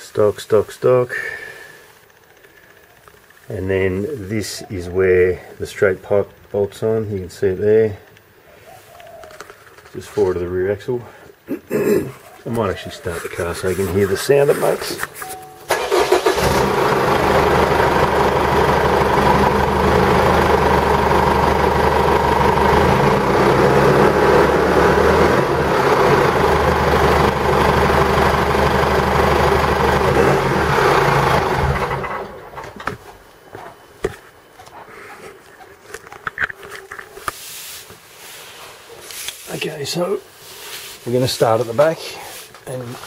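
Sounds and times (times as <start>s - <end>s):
diesel engine idling loudly: 16.4s - 32.4s.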